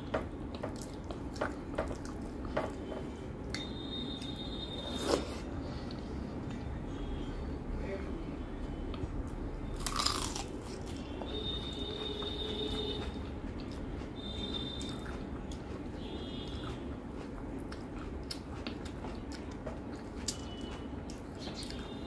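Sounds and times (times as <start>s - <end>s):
chewing with wet mouth clicks: 0.5s - 2.8s, 3.4s - 4.4s, 8.9s - 22.0s
food crunch: 9.8s - 11.1s.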